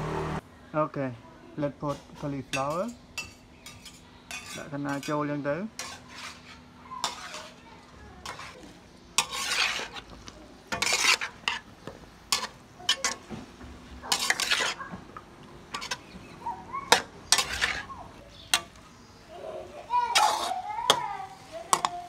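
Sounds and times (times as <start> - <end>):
metal spatula scraping a wok: 2.5 - 11.7, 12.3 - 13.3, 14.0 - 14.9, 15.7 - 16.2, 16.9 - 18.8, 20.0 - 21.1
food sizzling: 2.5 - 22.0.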